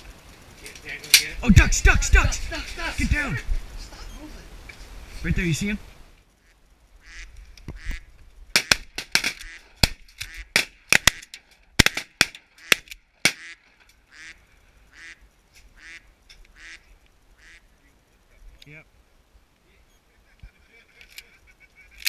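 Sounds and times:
duck quacking: 6.4 - 8.8, 12.6 - 15.2, 15.8 - 17.7.

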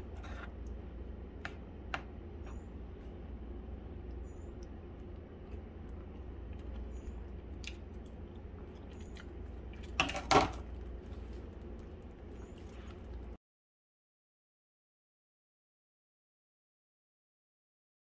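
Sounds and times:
gravy simmering with pops: 0.0 - 13.4
low hum: 0.0 - 13.4.

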